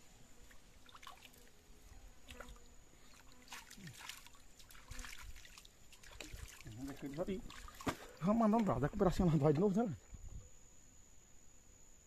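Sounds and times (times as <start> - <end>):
river water trickling over rocks: 0.5 - 1.5, 2.3 - 8.8.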